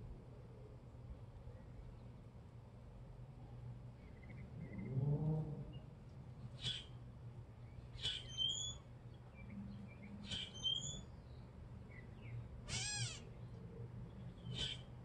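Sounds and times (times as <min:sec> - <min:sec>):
catbird harsh calls and whistles: 0:08.0 - 0:08.8, 0:10.2 - 0:11.1, 0:12.7 - 0:13.3, 0:14.4 - 0:14.9
catbird cat-like mew: 0:12.7 - 0:13.3.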